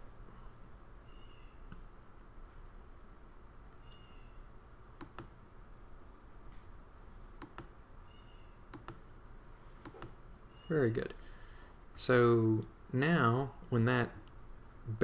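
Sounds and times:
low background hum: 0.0 - 15.0
mouse clicks: 5.0 - 5.4, 7.4 - 7.8, 8.7 - 9.0, 9.8 - 10.2.

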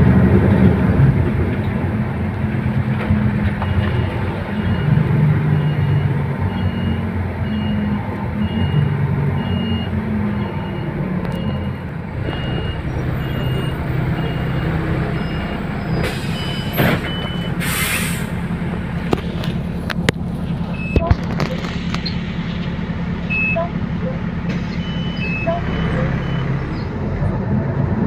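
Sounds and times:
bus engine humming: 0.0 - 28.0
pneumatic air hiss: 17.6 - 18.3.

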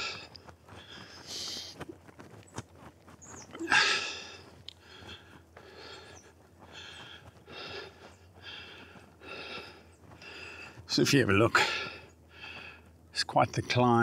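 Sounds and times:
man breathing hard: 0.0 - 1.8, 3.6 - 10.9, 11.6 - 13.1.

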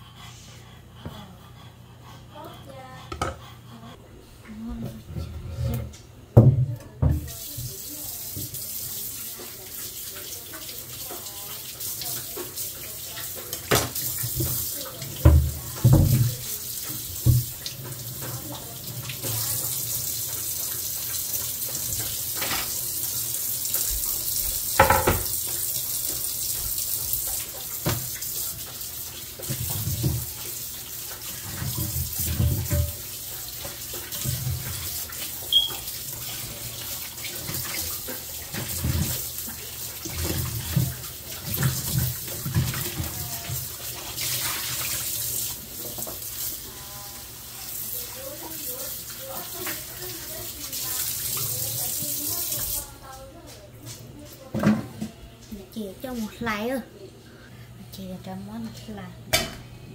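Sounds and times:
thumps and knocks in sink: 5.7 - 7.7, 13.5 - 18.4, 23.9 - 25.6, 27.3 - 28.1, 29.4 - 30.4, 31.4 - 33.0, 54.5 - 55.2
faucet running into sink: 6.9 - 53.0.

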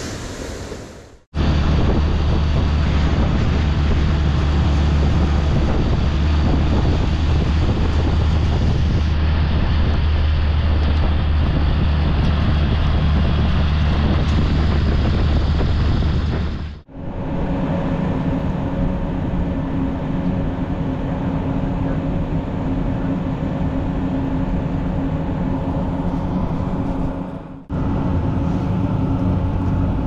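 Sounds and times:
engine running steadily: 1.4 - 30.0.

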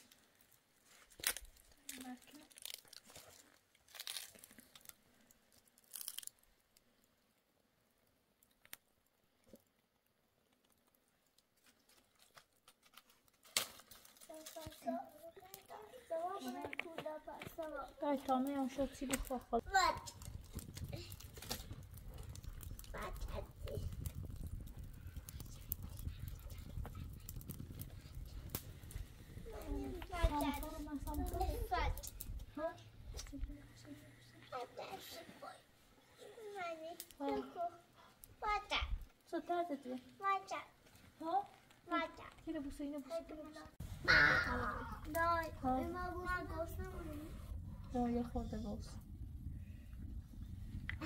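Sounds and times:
wood fire crackles: 0.0 - 51.0
low rumble: 43.8 - 51.0.

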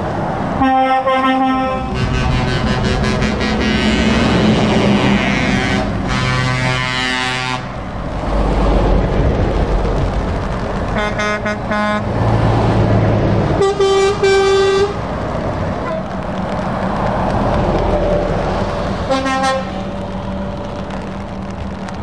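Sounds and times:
diesel engines rumbling: 0.0 - 22.0
lorry air horn blasts: 0.6 - 7.7.

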